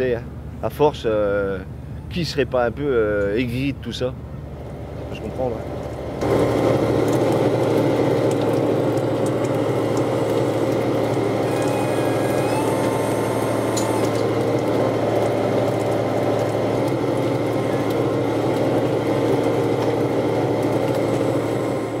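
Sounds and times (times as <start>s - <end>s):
boat engine humming: 0.0s - 22.0s.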